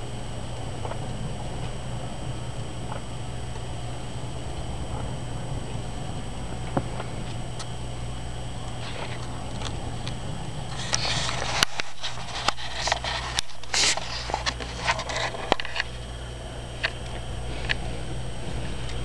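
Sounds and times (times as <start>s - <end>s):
steady low hum: 0.0s - 19.0s
camera handling rustling: 10.8s - 15.9s.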